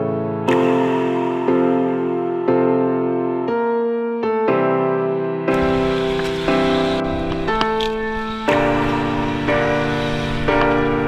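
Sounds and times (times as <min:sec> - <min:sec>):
keyboard chords: 0:00.0 - 0:11.0
hissing noise: 0:05.5 - 0:11.0.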